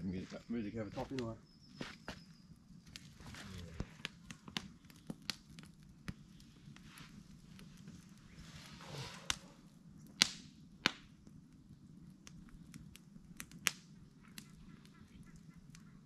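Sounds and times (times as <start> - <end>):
burning wood popping: 0.0 - 16.0
campfire crackling: 0.0 - 16.0.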